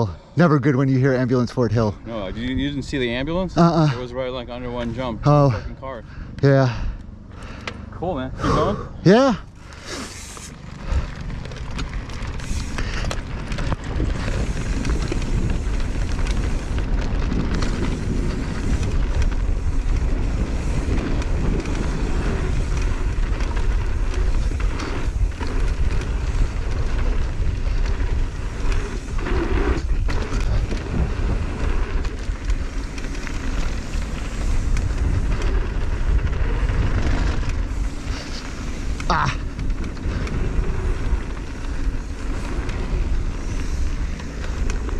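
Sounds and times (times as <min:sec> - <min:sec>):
bike tyre noise on dirt: 0:00.0 - 0:44.9
wind rumbling on microphone: 0:00.9 - 0:07.6, 0:08.4 - 0:44.9
bike knocking over bumps: 0:09.5 - 0:44.9.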